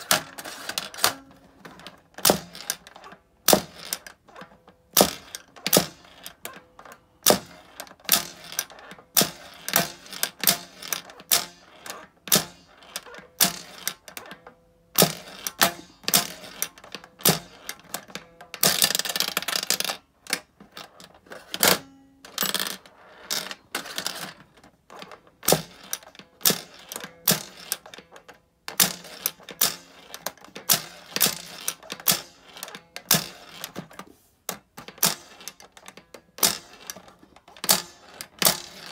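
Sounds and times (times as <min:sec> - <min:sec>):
steel balls clicking and clattering: 0:34.7 - 0:38.9.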